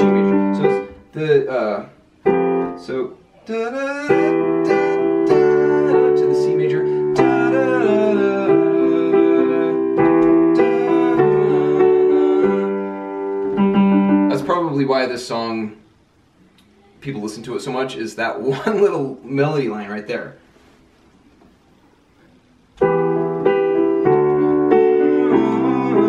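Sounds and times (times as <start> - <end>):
digital piano chords and melody: 0.0 - 1.6, 2.2 - 3.1, 4.1 - 14.8, 22.8 - 26.0.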